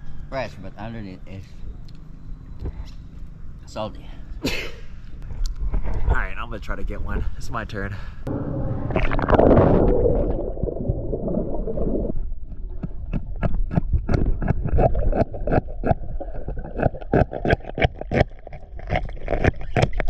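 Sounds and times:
axe chipping underwater: 0:12.6 - 0:20.0.

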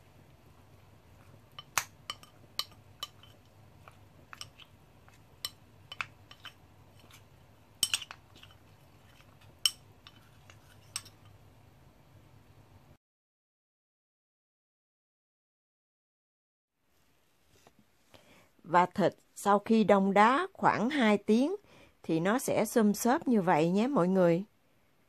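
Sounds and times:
metal spoon clinking on bowl: 0:01.2 - 0:07.2, 0:07.8 - 0:11.4.

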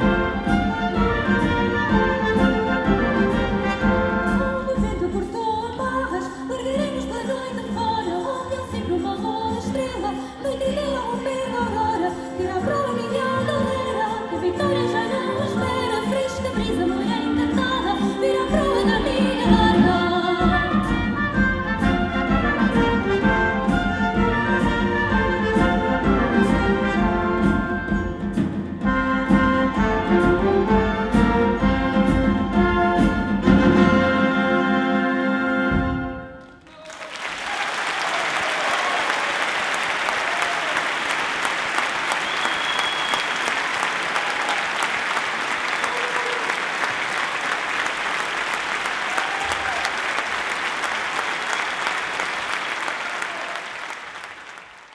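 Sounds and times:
orchestra and children's choir: 0:00.0 - 0:05.4
audience applauding: 0:36.4 - 0:54.9.

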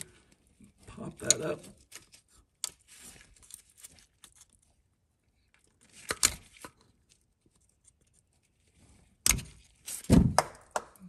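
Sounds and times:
screwdriver prying plastic clip: 0:09.3 - 0:09.5.

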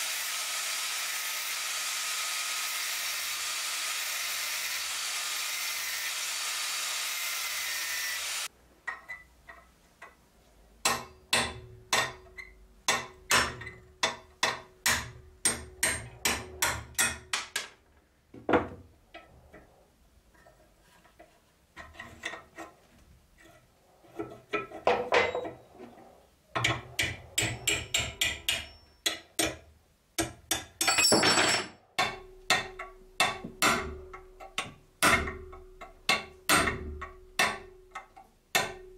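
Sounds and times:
angle grinder cutting metal: 0:00.0 - 0:08.5
hammer striking steel punch: 0:10.8 - 0:12.3, 0:12.9 - 0:17.7, 0:32.0 - 0:37.7.

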